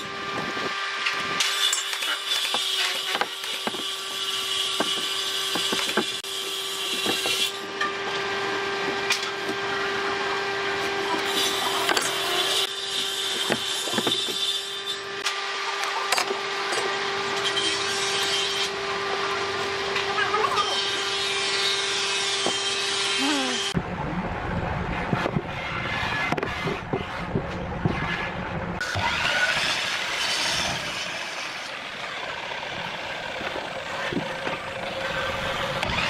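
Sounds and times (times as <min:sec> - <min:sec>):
steady hum: 0:23.2 - 0:28.9.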